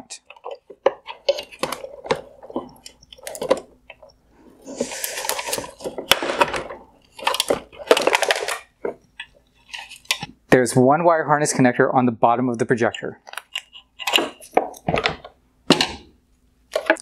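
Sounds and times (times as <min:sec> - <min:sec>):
hard plastic clicking and rattling: 0:00.2 - 0:04.1, 0:05.3 - 0:09.4.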